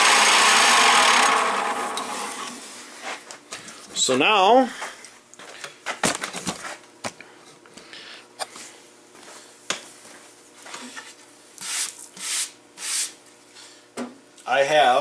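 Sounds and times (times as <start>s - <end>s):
hand brushing sawdust off wood: 11.6s - 13.2s.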